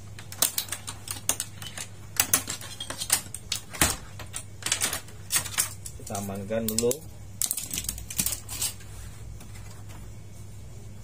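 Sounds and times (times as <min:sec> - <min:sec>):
low steady hum: 0:00.0 - 0:11.0
sharp clicks and clacks of plastic: 0:00.1 - 0:08.4.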